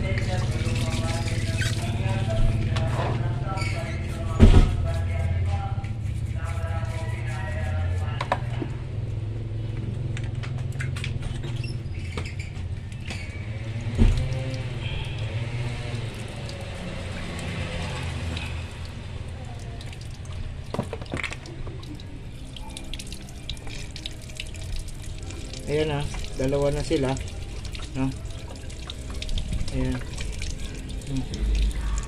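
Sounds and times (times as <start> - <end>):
water running and splashing: 0.0 - 2.8, 11.6 - 32.0.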